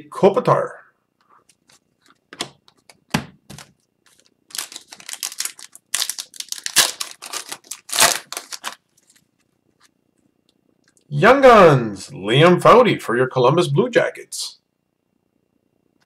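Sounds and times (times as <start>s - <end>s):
foil wrapper tearing and crackling: 3.6s - 9.2s.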